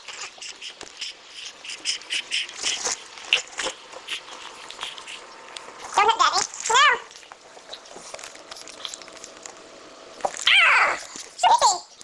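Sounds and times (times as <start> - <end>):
puppy snuffling: 0.0 - 6.0.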